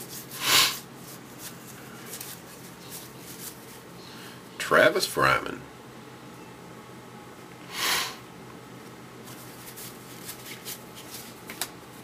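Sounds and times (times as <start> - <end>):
man sniffing: 0.3 - 0.8, 7.7 - 8.2
cards being handled: 1.0 - 3.9, 9.2 - 11.8.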